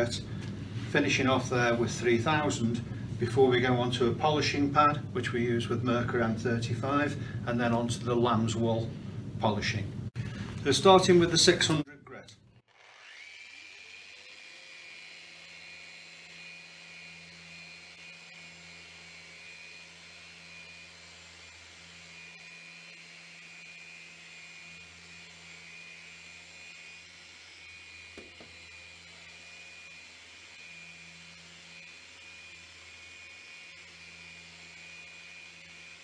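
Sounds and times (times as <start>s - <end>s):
orbital sander running: 12.6s - 36.0s.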